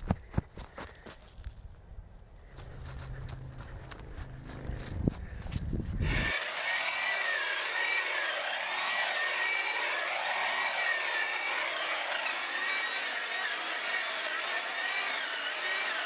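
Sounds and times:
electric hedge trimmer whining: 6.0s - 16.0s.

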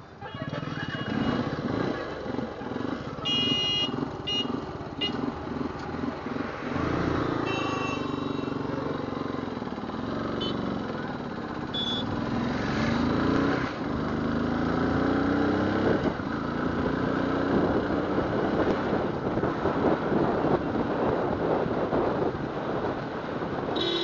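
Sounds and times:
motorcycle engine revving: 0.2s - 24.0s
wind noise on microphone: 17.4s - 24.0s.

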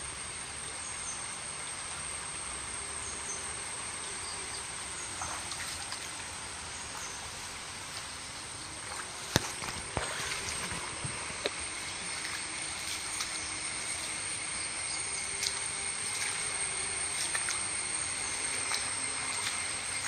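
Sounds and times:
constant high whine: 0.0s - 20.0s
floodwater rushing: 4.6s - 20.0s.

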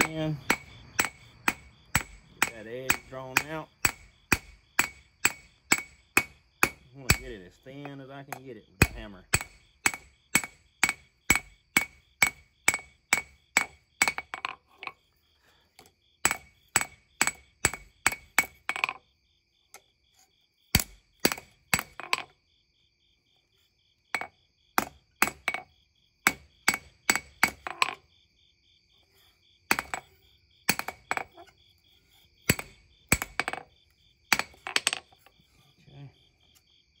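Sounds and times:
hammer striking steel on anvil: 0.0s - 8.0s, 8.8s - 14.3s, 16.2s - 18.5s, 26.3s - 27.6s, 32.5s - 33.6s.

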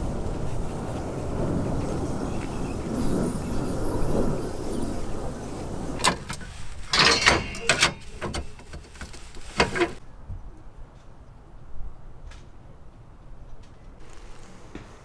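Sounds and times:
short knocks and clatters: 6.0s - 10.0s.

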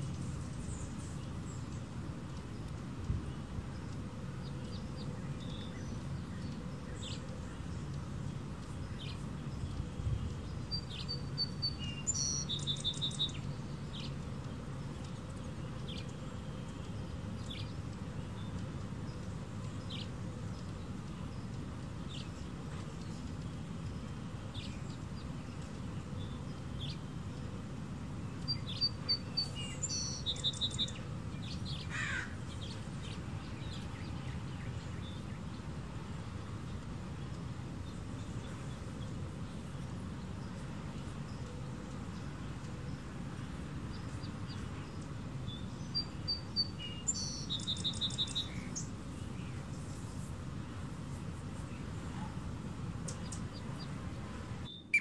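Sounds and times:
hummingbirds chipping: 0.0s - 55.0s.

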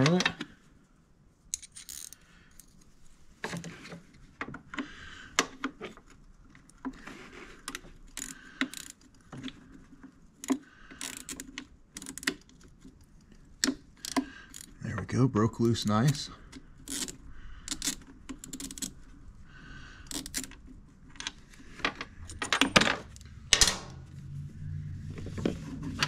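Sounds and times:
wrench clicking and clinking: 1.5s - 2.8s, 7.7s - 9.1s, 10.4s - 12.4s, 13.6s - 14.8s, 16.8s - 19.0s, 20.0s - 20.6s.

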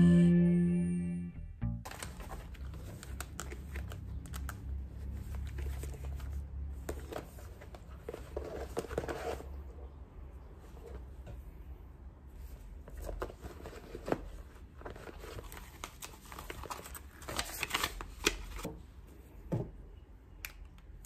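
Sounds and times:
low steady hum: 0.0s - 7.0s.

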